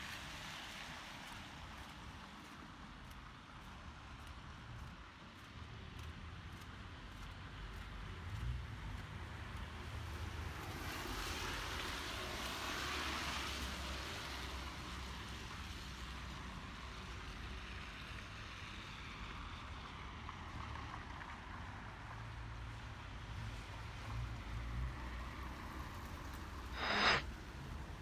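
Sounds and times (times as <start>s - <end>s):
tyres hissing on wet road: 0.0s - 2.6s, 9.8s - 20.9s.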